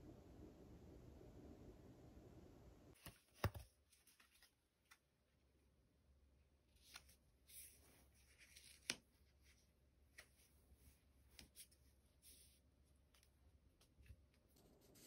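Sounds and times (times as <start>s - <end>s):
paper card rustling: 3.0s - 5.1s, 6.8s - 10.5s.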